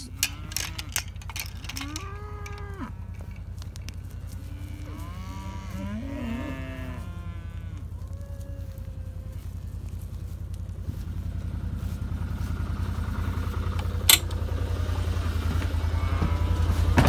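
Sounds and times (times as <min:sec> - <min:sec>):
cows mooing: 0:00.0 - 0:10.3, 0:15.5 - 0:17.0
steady low hum: 0:00.0 - 0:17.0.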